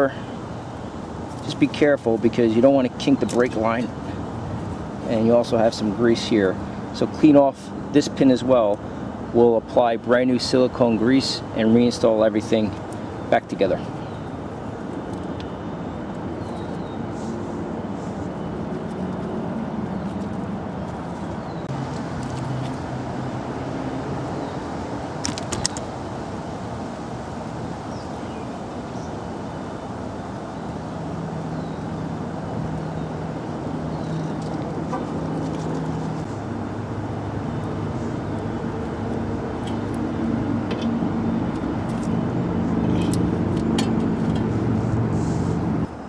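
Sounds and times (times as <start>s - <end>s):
vehicle engine droning: 30.5s - 46.0s.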